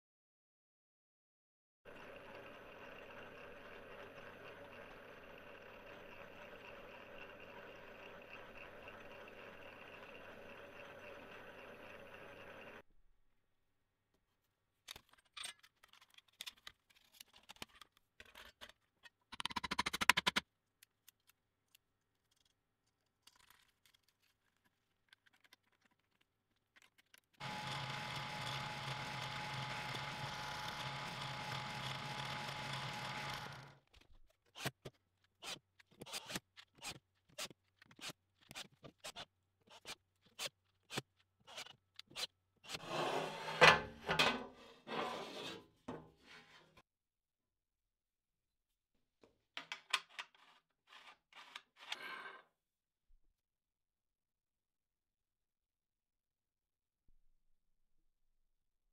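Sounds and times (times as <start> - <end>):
drill press motor running: 1.9 - 12.8, 27.4 - 33.9
clattering scrape: 42.2 - 46.8
steel plate scraping on bench: 42.7 - 46.8, 50.4 - 52.5.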